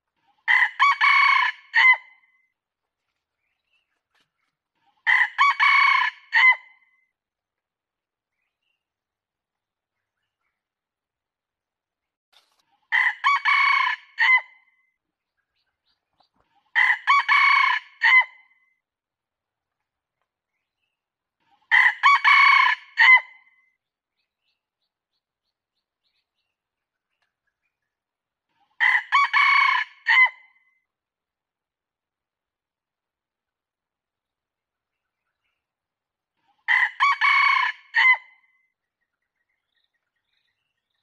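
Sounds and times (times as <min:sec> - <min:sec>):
rooster crowing: 0:05.1 - 0:06.6, 0:13.0 - 0:14.4, 0:16.8 - 0:18.3, 0:21.7 - 0:23.3, 0:28.8 - 0:30.4, 0:36.7 - 0:38.2.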